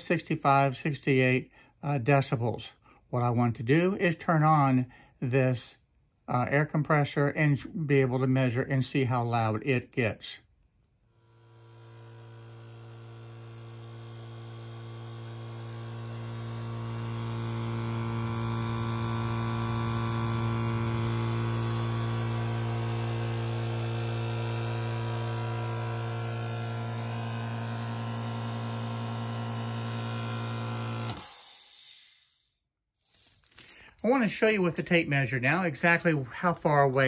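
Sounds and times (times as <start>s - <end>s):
air compressor humming: 11.2s - 31.3s.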